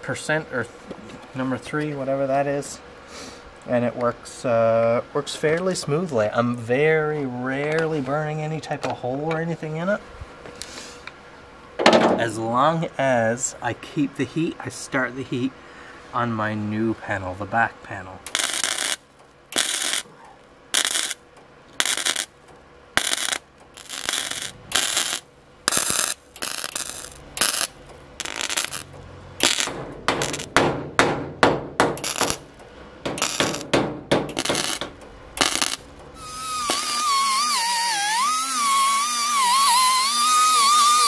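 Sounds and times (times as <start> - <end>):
welder arc crackling: 18.2 - 20.1, 20.7 - 30.6, 32.0 - 41.0
die grinder whining: 35.4 - 41.0.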